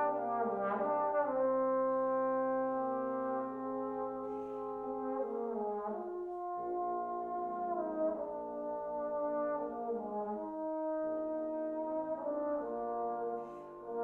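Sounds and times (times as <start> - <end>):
trombones playing sustained chords: 0.0 - 14.0.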